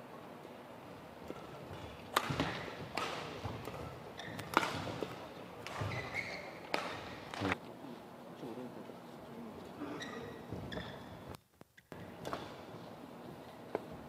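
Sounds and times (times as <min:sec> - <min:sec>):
racket hitting shuttlecock: 0:01.2 - 0:07.6, 0:11.9 - 0:12.6
sneaker squeaks on court floor: 0:01.4 - 0:07.4, 0:10.0 - 0:11.3.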